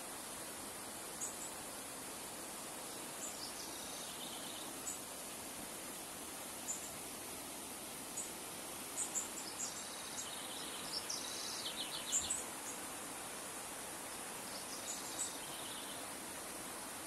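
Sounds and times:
birds chirping: 9.0 - 12.9.

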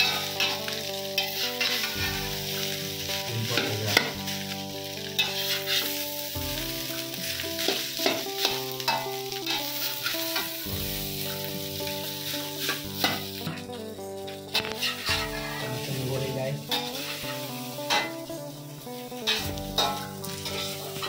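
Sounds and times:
metal spatula scraping wok: 0.0 - 18.4, 19.2 - 21.0
frying sizzle: 0.0 - 21.0.

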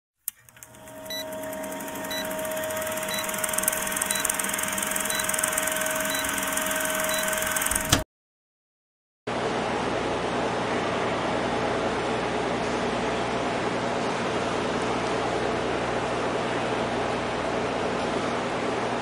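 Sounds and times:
click: 0.2 - 2.2
film projector clattering: 0.3 - 8.0.

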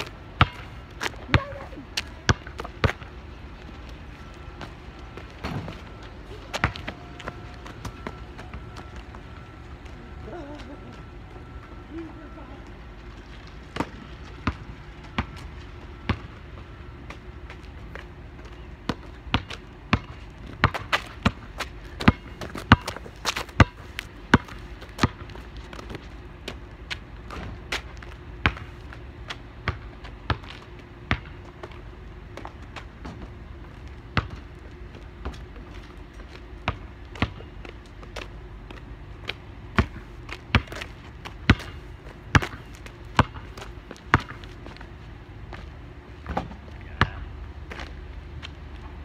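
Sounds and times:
basketball bouncing on asphalt: 0.0 - 9.9, 13.2 - 49.0.

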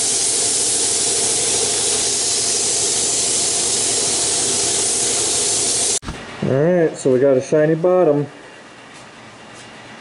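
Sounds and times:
paint spray gun hissing: 0.0 - 6.3.

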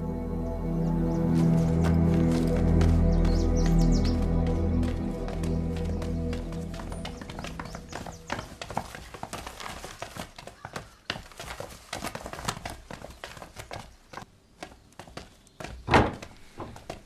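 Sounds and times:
footsteps on hard floor: 1.1 - 13.7
people shuffling and knocking: 1.4 - 13.7.

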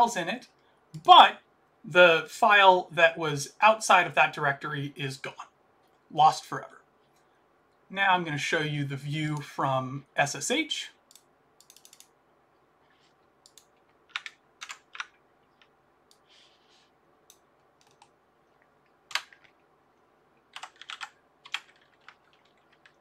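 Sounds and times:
keyboard typing clicks: 11.1 - 12.1, 13.4 - 16.2, 17.3 - 18.1.

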